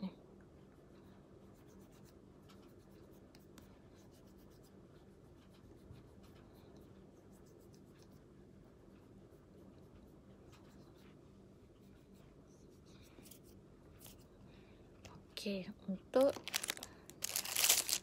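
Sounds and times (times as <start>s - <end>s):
low steady hum: 0.0s - 18.0s
fingertips rubbing on face: 0.8s - 14.3s.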